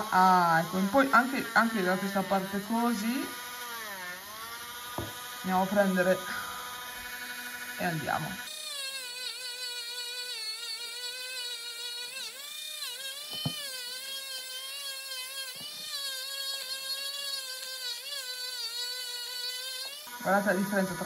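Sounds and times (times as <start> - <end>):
rotary tool motor whine: 0.0 - 21.0
small knock: 5.0 - 5.2, 13.3 - 13.6.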